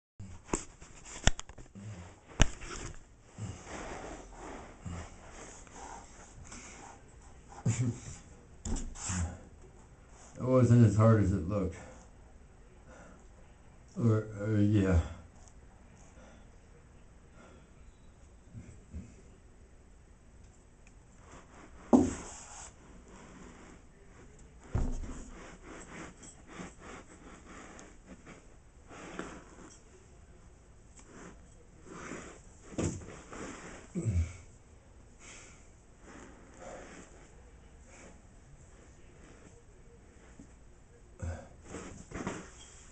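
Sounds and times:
rustling and scraping on carpet: 2.1s - 7.9s, 21.2s - 30.1s, 30.9s - 33.9s, 41.6s - 42.9s
soft thumps on carpeted floor: 24.6s - 25.4s.

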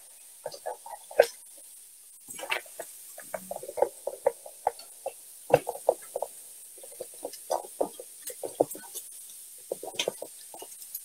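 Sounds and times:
whisk clicking against saucepan: 2.3s - 11.0s.

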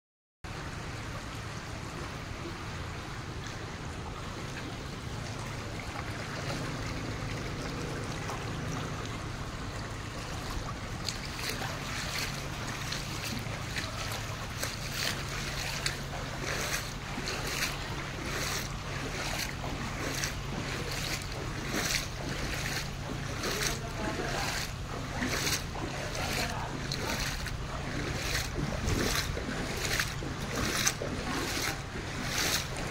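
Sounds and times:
floodwater running and splashing: 0.5s - 32.9s
wind rumble on microphone: 0.6s - 32.9s.

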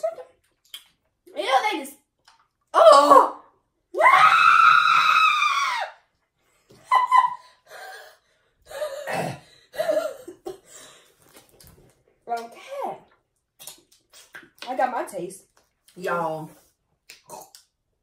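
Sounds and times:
woman screaming: 4.0s - 6.0s.

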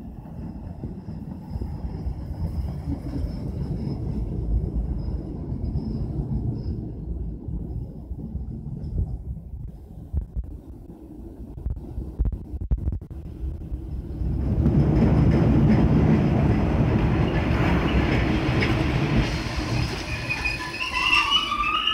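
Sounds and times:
subway train rumbling: 0.0s - 21.9s
train wheels clattering: 14.2s - 21.8s.

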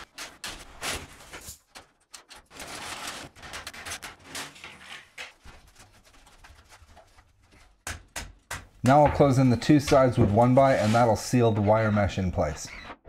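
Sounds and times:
wire mesh rustling and scraping: 0.0s - 7.7s.

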